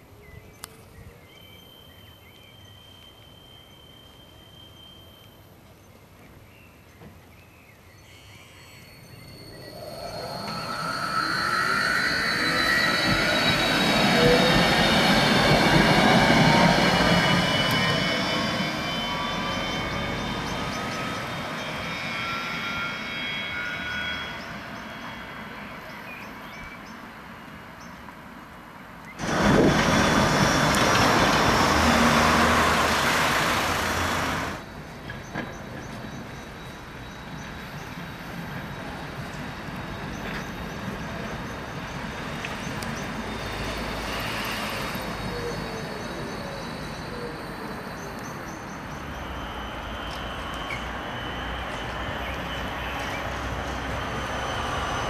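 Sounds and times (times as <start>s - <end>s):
tram motors whining: 8.2s - 26.0s, 29.1s - 36.2s, 37.4s - 55.0s
wheels rumbling on rails: 8.4s - 28.0s, 28.8s - 55.0s
loud rushing noise: 9.5s - 21.6s, 29.2s - 34.7s.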